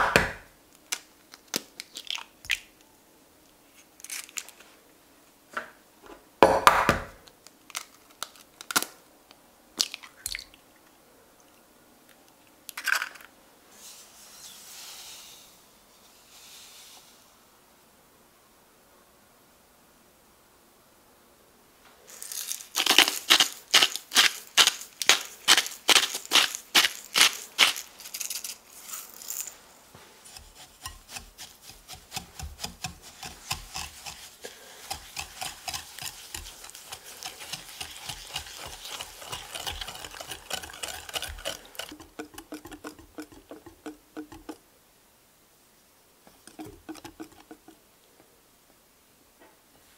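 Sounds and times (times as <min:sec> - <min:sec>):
whisk stroking through liquid: 0:30.2 - 0:44.6, 0:46.3 - 0:47.8
whisk clinking against glass bowl: 0:30.4 - 0:44.6, 0:46.4 - 0:47.7.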